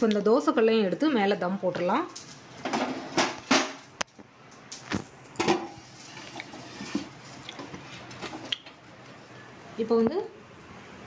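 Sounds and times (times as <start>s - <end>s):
metal griddle knocks and scrapes: 2.2s - 3.9s, 4.8s - 8.4s.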